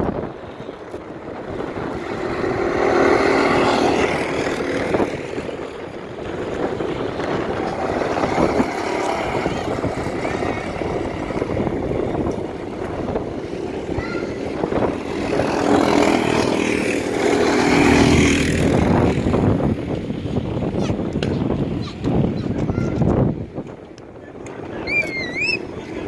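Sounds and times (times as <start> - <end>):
go-kart engines passing: 0.0 - 26.0.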